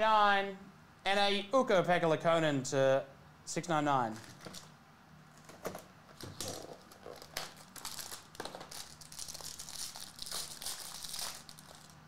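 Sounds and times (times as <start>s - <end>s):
foil pack crinkling and tearing: 6.3s - 12.0s.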